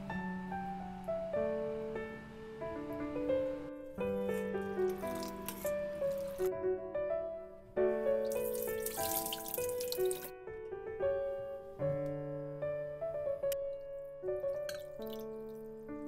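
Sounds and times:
background music sustained notes: 0.0s - 16.0s
running water splashing: 4.3s - 6.5s, 8.2s - 10.3s, 14.6s - 15.6s.

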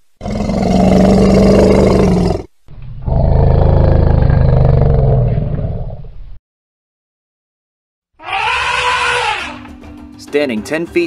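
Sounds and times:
elephant roaring: 0.2s - 6.0s.

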